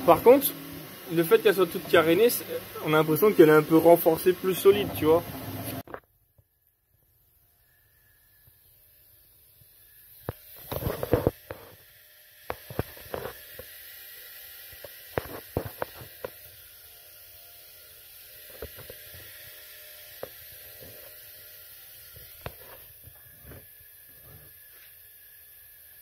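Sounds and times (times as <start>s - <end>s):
printer fans humming: 0.0s - 5.8s.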